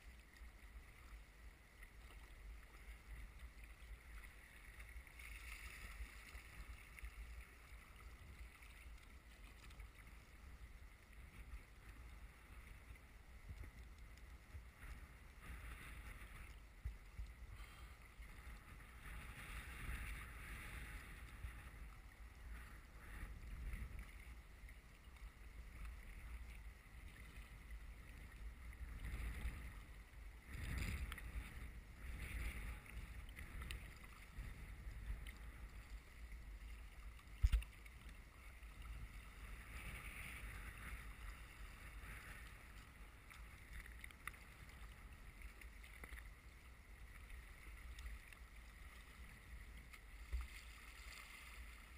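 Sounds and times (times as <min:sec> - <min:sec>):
wind rumble on microphone: 0:09.6 - 0:50.6.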